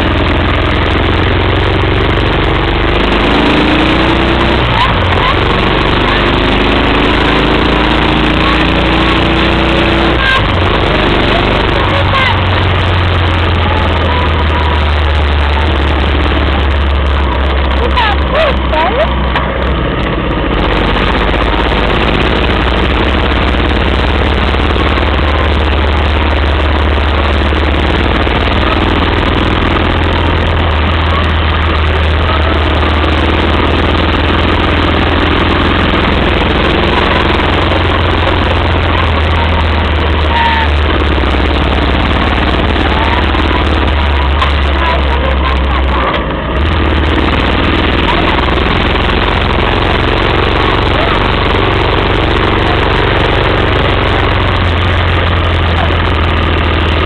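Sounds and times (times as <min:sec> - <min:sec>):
motorcycle engine rumble: 0:00.0 - 0:57.0.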